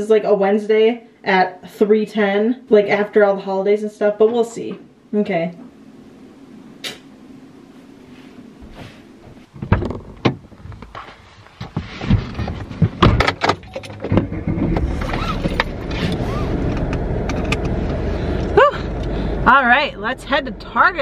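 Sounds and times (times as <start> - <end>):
clicks and knocks in car cabin: 9.6 - 11.0, 11.6 - 16.2
car engine low rumble: 12.1 - 21.0
seatbelt being pulled: 14.7 - 16.8.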